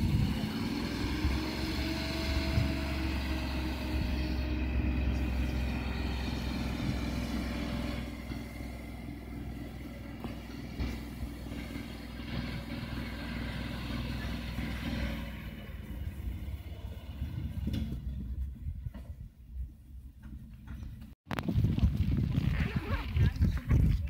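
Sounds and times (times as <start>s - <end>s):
winch engine running: 0.0s - 18.2s.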